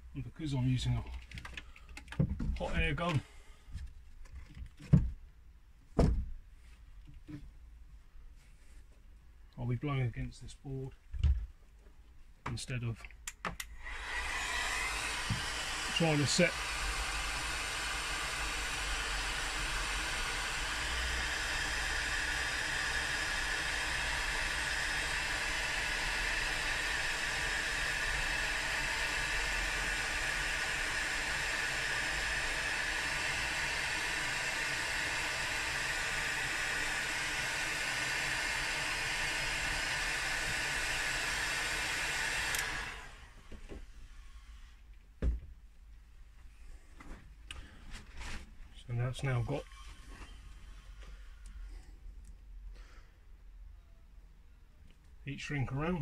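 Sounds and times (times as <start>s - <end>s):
hot air gun blowing: 13.7s - 43.4s.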